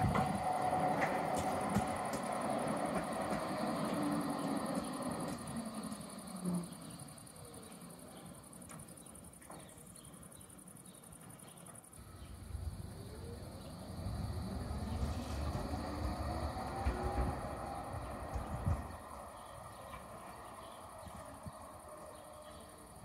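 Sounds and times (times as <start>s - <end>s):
tram running: 0.0s - 23.0s
approaching vehicle rumble: 12.0s - 23.0s.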